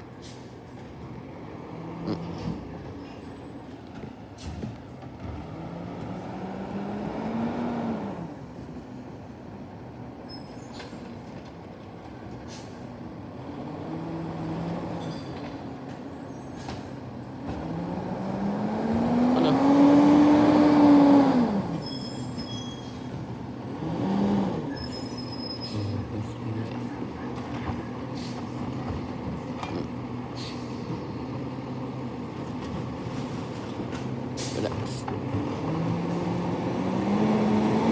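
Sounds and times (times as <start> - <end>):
truck diesel engine revving: 5.4 - 8.4, 17.6 - 21.8, 23.5 - 24.8, 34.2 - 37.9.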